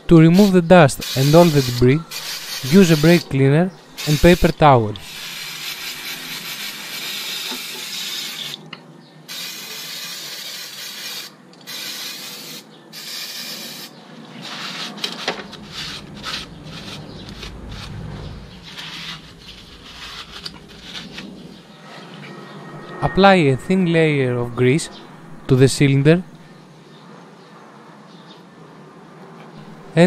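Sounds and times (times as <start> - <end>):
aerosol spray hissing: 0.3 - 3.2, 4.0 - 4.5, 5.1 - 8.5, 9.3 - 13.9
paper towel rubbing metal: 0.3 - 3.3, 14.4 - 21.6.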